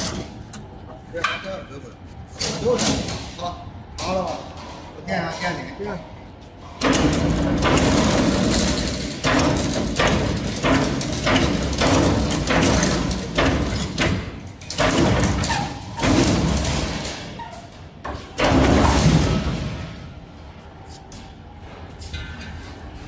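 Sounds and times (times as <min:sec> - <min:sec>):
machine knocks: 0:06.8 - 0:17.4
machine drum rattling: 0:06.8 - 0:20.1.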